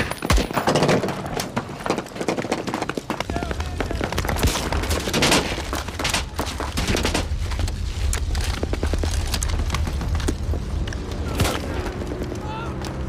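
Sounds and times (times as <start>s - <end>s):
low rumble: 7.0s - 13.0s.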